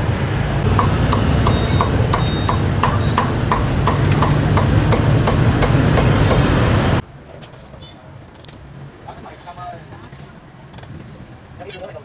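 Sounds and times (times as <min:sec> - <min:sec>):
cleaver chopping on wooden block: 0:00.7 - 0:06.4.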